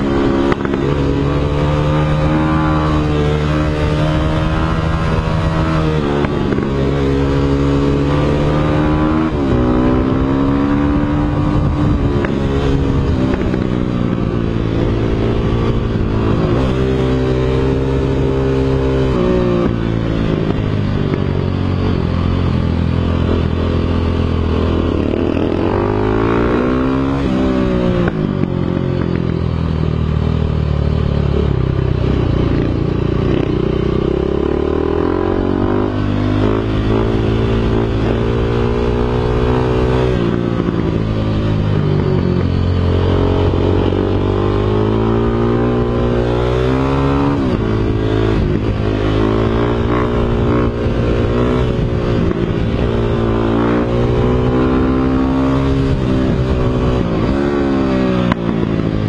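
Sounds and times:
dirt bike engine revving: 23.0s - 28.2s, 32.5s - 59.0s.

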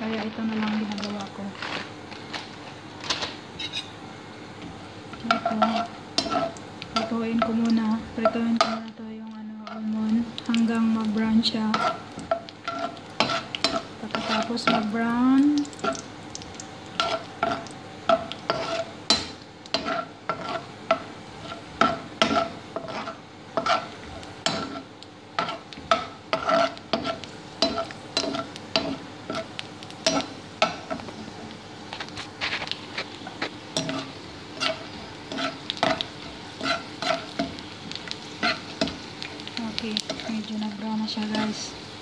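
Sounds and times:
almonds sizzling in oil: 0.0s - 42.0s
metal spoon scraping wok: 3.6s - 3.9s, 5.2s - 7.6s, 11.6s - 14.9s, 17.0s - 24.8s, 25.4s - 31.0s, 32.3s - 37.5s, 41.2s - 41.7s.

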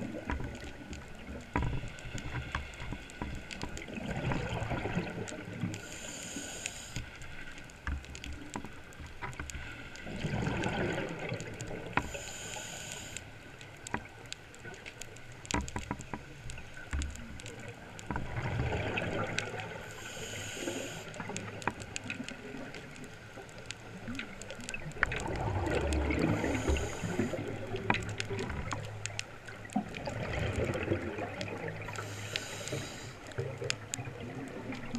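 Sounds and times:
faint clicks: 0.0s - 34.9s
regulator hissing inhale: 5.8s - 7.5s, 12.0s - 13.5s, 19.7s - 21.3s, 26.2s - 27.7s, 31.9s - 33.4s
bubbling exhale: 25.2s - 27.8s.

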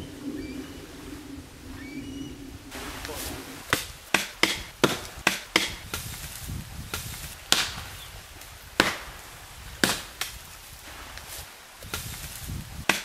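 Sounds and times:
axe chopping wood: 3.7s - 6.2s, 6.9s - 7.9s, 8.8s - 9.1s, 9.8s - 10.4s.

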